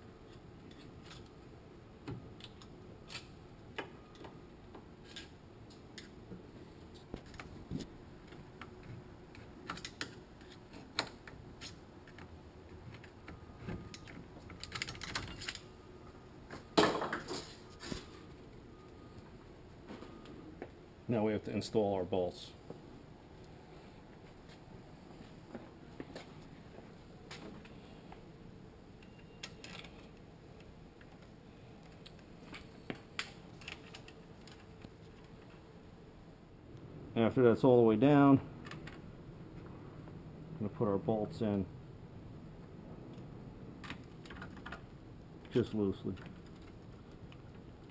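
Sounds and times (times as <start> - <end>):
metal parts clicking and tapping: 9.3 - 12.3.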